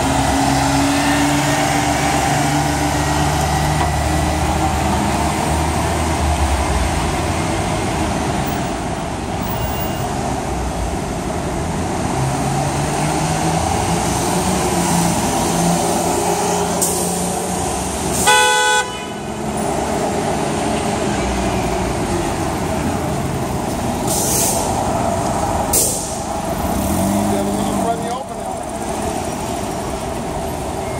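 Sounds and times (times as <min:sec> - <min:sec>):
bus and car engines idling: 0:00.0 - 0:30.9
vehicle horn honk: 0:18.2 - 0:19.3.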